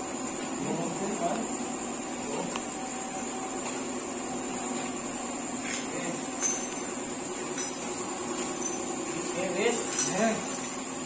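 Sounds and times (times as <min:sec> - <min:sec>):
background hum: 0:00.0 - 0:11.0
metal parts and tools clinking: 0:05.7 - 0:10.9.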